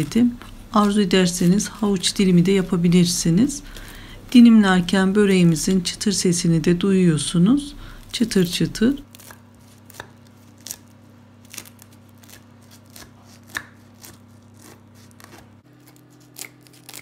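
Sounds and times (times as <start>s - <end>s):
faint low hum: 0.0s - 9.2s
knife cutting crisp pastry crust: 9.0s - 17.0s.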